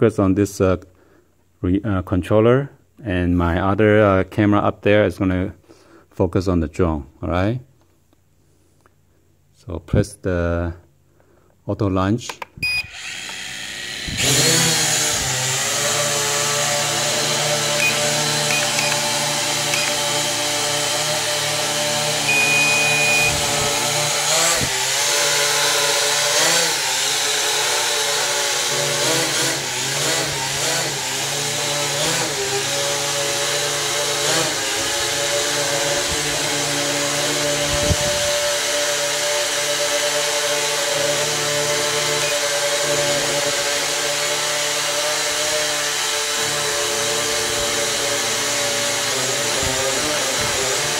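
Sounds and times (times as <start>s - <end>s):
quadcopter propeller motors whining: 12.8s - 50.9s.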